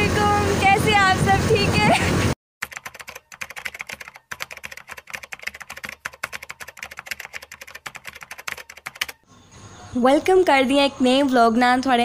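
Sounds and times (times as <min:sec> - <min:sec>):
rapid keyboard key clicks: 0:02.6 - 0:09.2.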